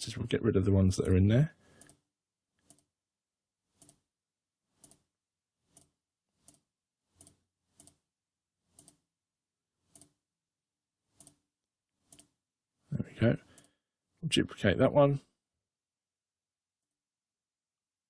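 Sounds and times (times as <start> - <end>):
computer mouse clicking: 2.6 - 2.9, 3.8 - 4.0, 4.8 - 5.0, 5.7 - 8.0, 8.7 - 9.0, 9.9 - 10.2, 11.2 - 11.4, 12.1 - 12.4.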